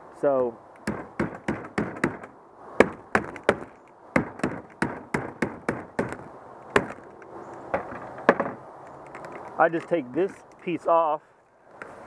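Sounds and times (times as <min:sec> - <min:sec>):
knocks on plastic pipe fittings: 0:07.7 - 0:08.6.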